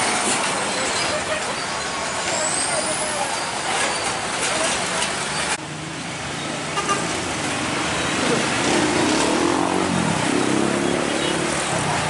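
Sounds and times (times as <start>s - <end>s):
road traffic: 0.0s - 12.0s
vehicle engine passing: 7.2s - 12.0s.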